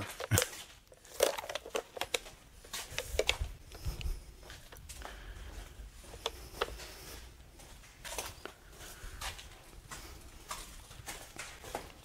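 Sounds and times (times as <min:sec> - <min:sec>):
camera handling noise: 0:01.1 - 0:04.8
footsteps on concrete: 0:02.2 - 0:12.0.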